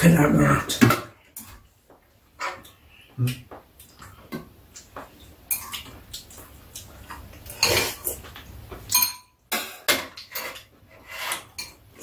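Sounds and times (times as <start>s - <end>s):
metal utensils clinking on bowls: 5.5s - 6.0s, 7.4s - 12.0s.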